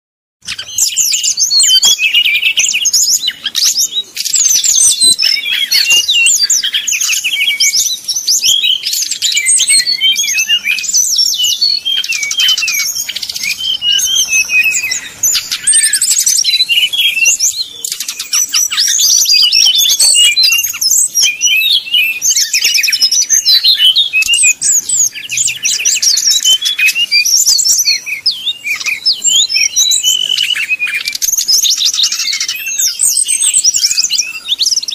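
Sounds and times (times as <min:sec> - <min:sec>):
bird singing rapid varied song: 0:00.4 - 0:34.9.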